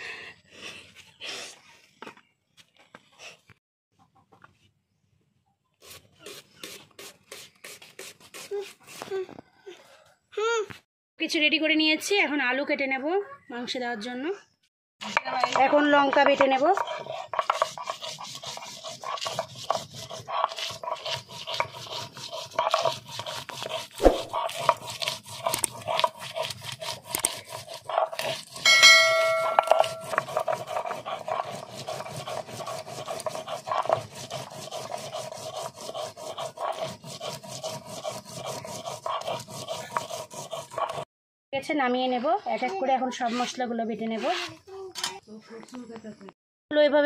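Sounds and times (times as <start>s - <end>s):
stone scraping on stone: 15.0s - 41.1s
high-pitched tone: 28.7s - 30.1s.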